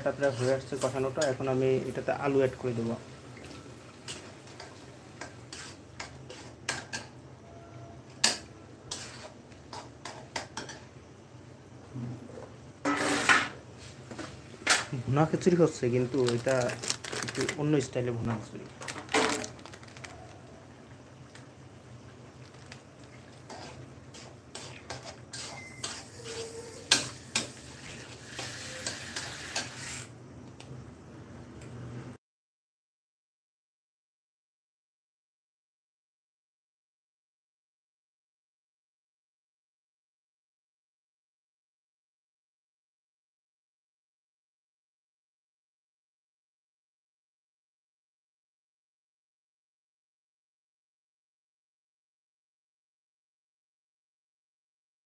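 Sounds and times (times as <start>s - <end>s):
metal spatula scraping wok: 0.0s - 2.0s, 4.0s - 7.2s, 7.8s - 10.8s, 12.8s - 14.4s, 23.2s - 30.1s.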